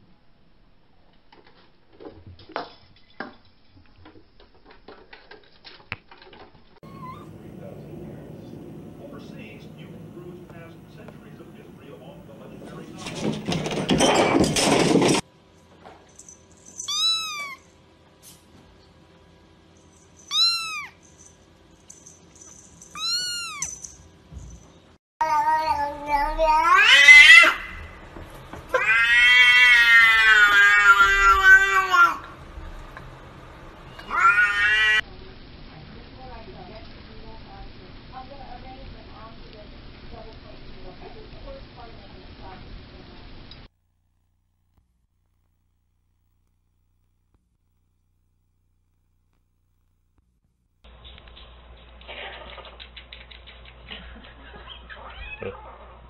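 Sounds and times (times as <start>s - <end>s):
adult cat meowing: 16.9s - 17.6s, 20.3s - 21.0s, 23.0s - 23.7s, 28.7s - 32.2s, 33.9s - 35.0s, 54.9s - 55.6s
kitten mewing: 16.9s - 17.6s, 20.3s - 21.0s, 22.9s - 23.7s.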